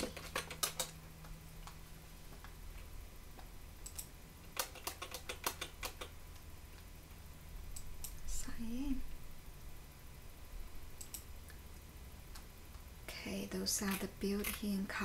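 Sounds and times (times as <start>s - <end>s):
computer keyboard keystrokes: 0.0s - 1.8s, 3.8s - 6.2s, 11.0s - 11.3s.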